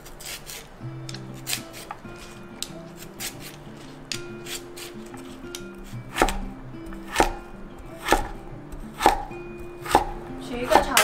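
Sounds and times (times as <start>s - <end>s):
peeler scraping root skin: 0.0s - 6.4s
cleaver chopping on wooden board: 1.1s - 11.0s.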